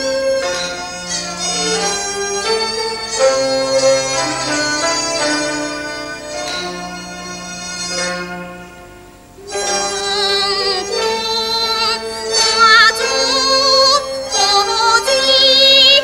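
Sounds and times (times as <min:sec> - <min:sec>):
opera ensemble accompaniment: 0:00.0 - 0:16.0
woman singing opera aria: 0:09.5 - 0:16.0.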